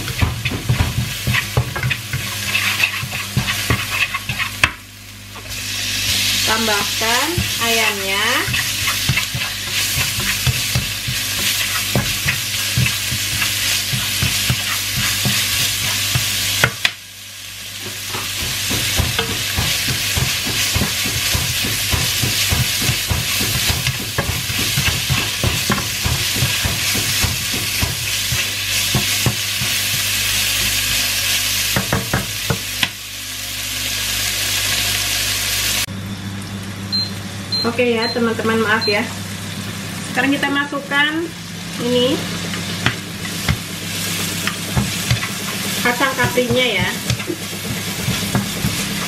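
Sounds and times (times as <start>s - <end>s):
wooden spatula scraping a pan: 0.0s - 4.6s, 7.3s - 16.7s
chicken sizzling in a frying pan: 0.0s - 49.0s.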